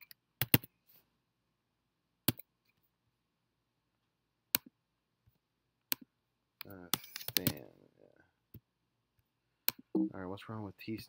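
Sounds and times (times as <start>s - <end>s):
keyboard and mouse clicks: 0.0s - 0.7s, 2.3s - 2.5s, 4.5s - 4.7s, 5.8s - 7.7s.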